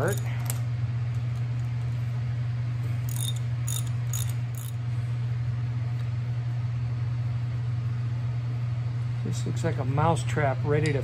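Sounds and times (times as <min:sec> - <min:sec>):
metallic clinks of tools: 0:00.0 - 0:00.3, 0:03.1 - 0:04.8
steady low hum: 0:00.0 - 0:11.0.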